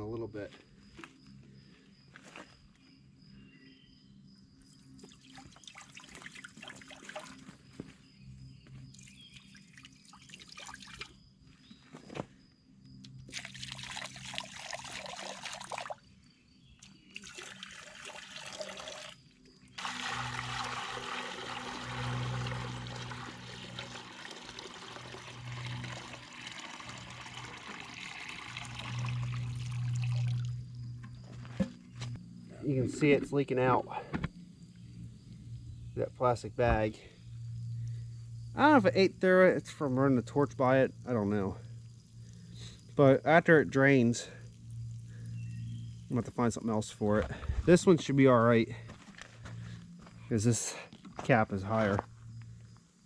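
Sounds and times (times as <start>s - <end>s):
liquid pouring into metal tank: 13.3s - 16.0s, 17.2s - 19.2s, 19.8s - 30.6s.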